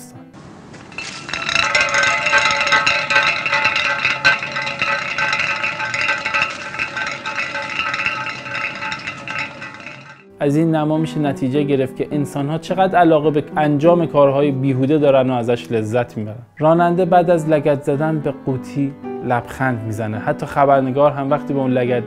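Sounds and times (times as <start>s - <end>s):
metal can rolling on asphalt: 0.8s - 10.3s.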